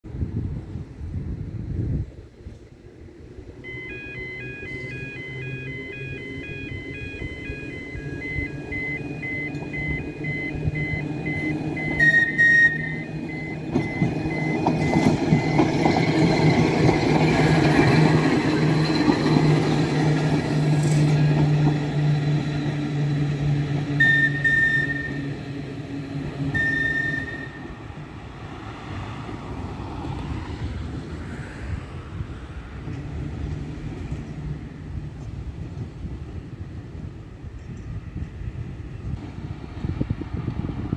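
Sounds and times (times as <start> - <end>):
tram rumbling on rails: 0.1 - 40.9
short high tones: 3.6 - 16.8, 26.5 - 27.8
level crossing alarm beeping: 3.6 - 20.2, 23.9 - 25.6, 26.2 - 28.0.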